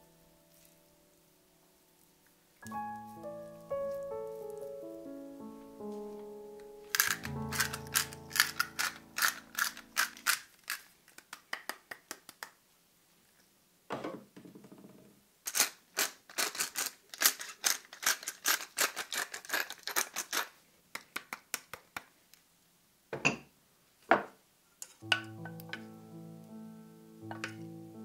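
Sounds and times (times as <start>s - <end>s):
hand grinder gritty clicks: 7.0s - 10.9s.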